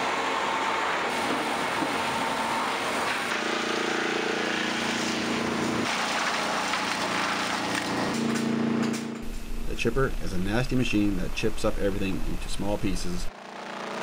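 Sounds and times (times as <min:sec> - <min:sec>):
conveyor machinery noise: 0:00.0 - 0:13.3
low machine hum: 0:08.8 - 0:13.3.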